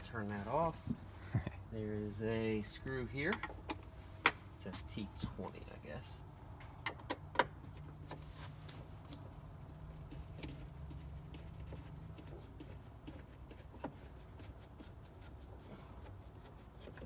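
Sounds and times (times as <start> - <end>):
low steady hum: 0.0 - 17.0
light clicks and taps on dashboard: 2.8 - 4.4, 6.7 - 8.2.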